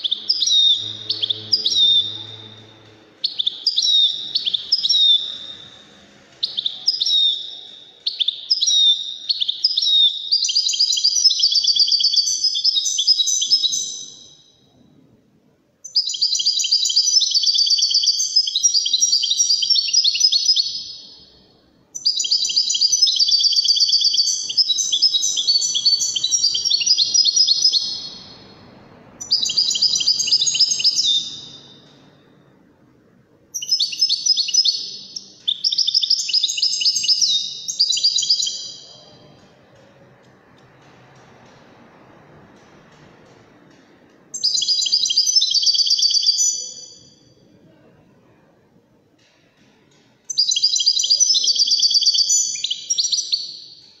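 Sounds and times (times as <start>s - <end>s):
goldfinch twittering and trilling: 22.0s - 28.2s, 29.2s - 31.8s.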